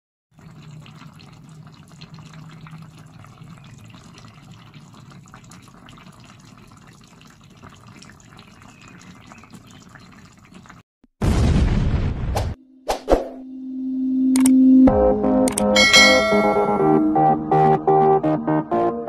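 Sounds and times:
sauce bubbling in a frying pan: 0.3 - 10.8.

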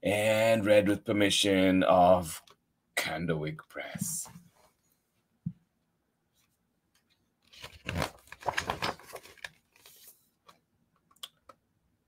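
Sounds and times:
book pages rustling: 6.4 - 10.6.

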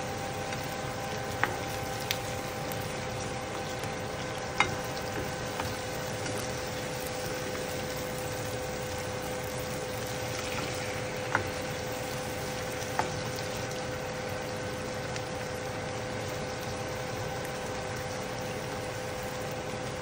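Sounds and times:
food sizzling in oil: 0.0 - 20.0
steady hum: 0.0 - 20.0
spatula tapping pan: 4.6 - 6.5.

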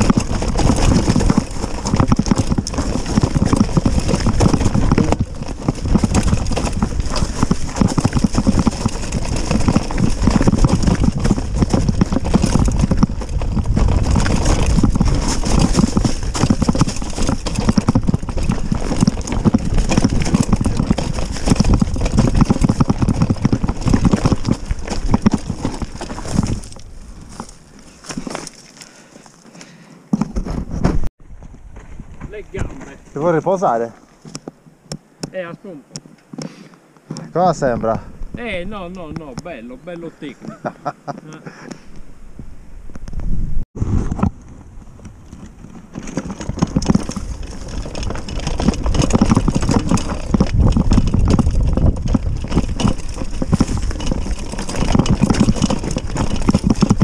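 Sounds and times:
mountain bike clattering over rocks: 0.0 - 31.0, 44.1 - 57.0.

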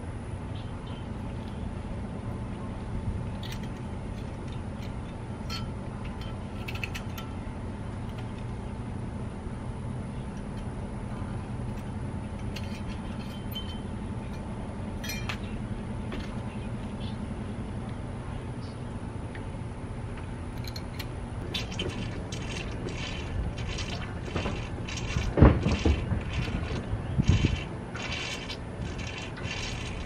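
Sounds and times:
low background hum: 0.0 - 30.0
metallic clinks of brake parts: 3.4 - 7.4, 12.4 - 15.6.

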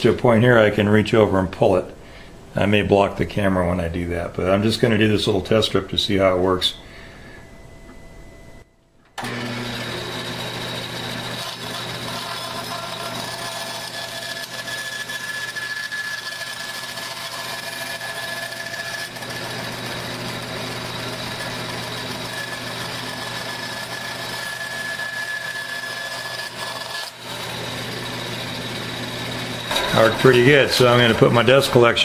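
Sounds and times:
bandsaw motor hum and blade whine: 9.2 - 32.0.

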